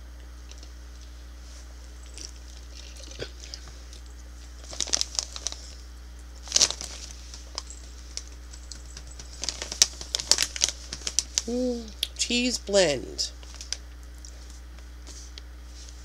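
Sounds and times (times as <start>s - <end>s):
plastic snack bag crinkling: 1.9s - 11.6s, 13.4s - 14.6s.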